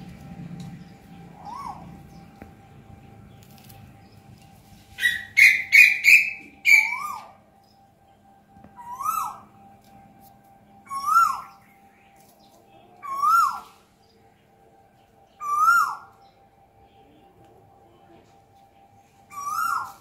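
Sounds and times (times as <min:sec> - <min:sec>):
bird calling: 0:00.8 - 0:04.3, 0:04.9 - 0:07.8, 0:08.7 - 0:09.7, 0:10.7 - 0:14.2, 0:15.2 - 0:16.4, 0:19.2 - 0:20.0.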